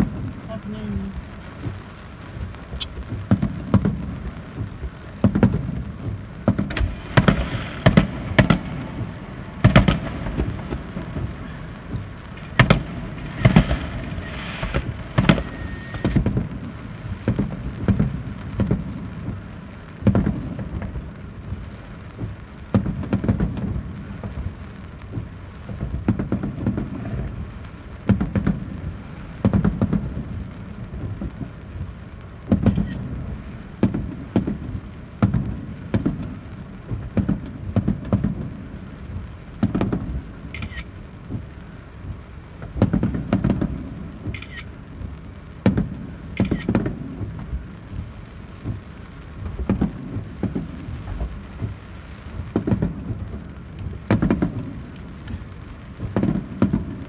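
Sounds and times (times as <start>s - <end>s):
firework shells bursting: 0.0s - 21.6s, 42.5s - 57.0s
rumbling booms: 0.0s - 57.0s.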